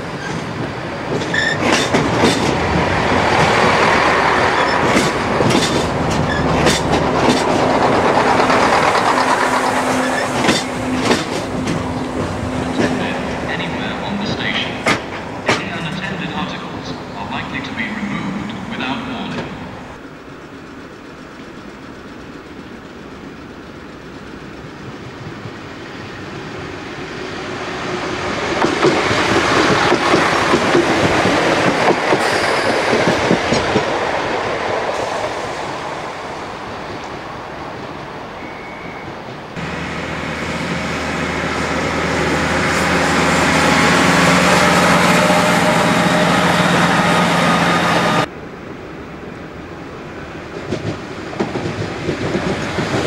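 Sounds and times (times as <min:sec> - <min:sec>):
low train engine drone: 0:00.0 - 0:53.0
train passing at speed: 0:00.0 - 0:53.0
wheels clattering over rail joints: 0:00.2 - 0:13.4.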